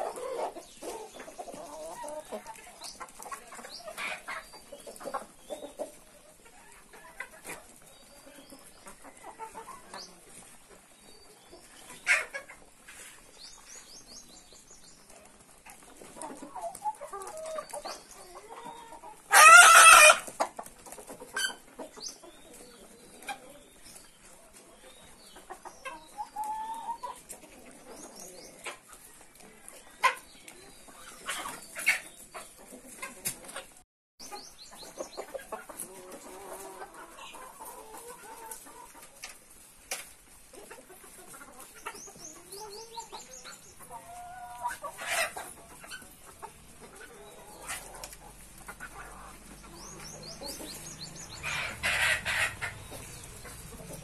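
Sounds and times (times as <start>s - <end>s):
chickens clucking softly: 0.0s - 54.0s
chicken squawk: 18.6s - 20.3s, 50.1s - 54.0s.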